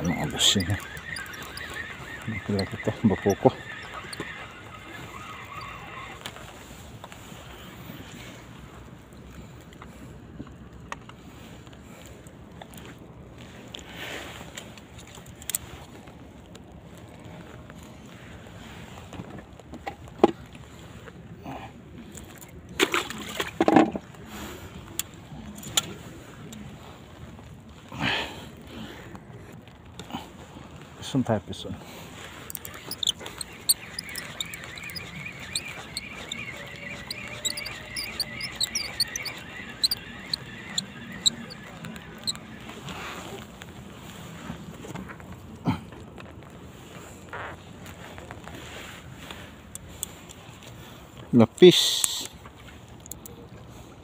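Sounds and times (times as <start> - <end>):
small birds chirping: 0.0 - 6.2, 32.3 - 42.8
handling clicks and rustles: 0.0 - 7.3, 31.8 - 51.3.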